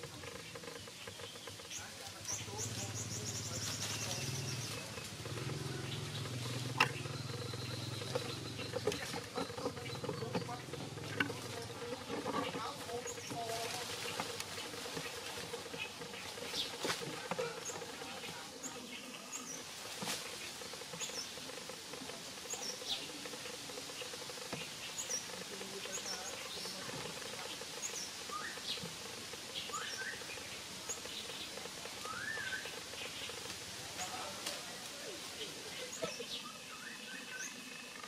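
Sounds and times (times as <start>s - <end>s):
sharp clicks: 0.0s - 13.3s
rising calls: 0.0s - 38.0s
steady hiss: 12.6s - 38.0s.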